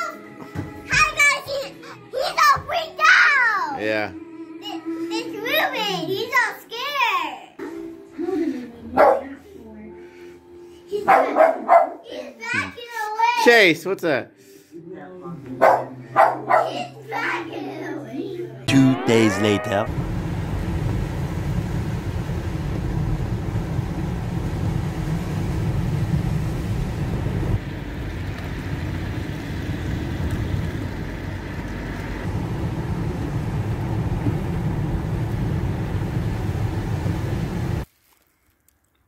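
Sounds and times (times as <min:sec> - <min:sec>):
car engine and tyre rumble: 0:19.9 - 0:37.9.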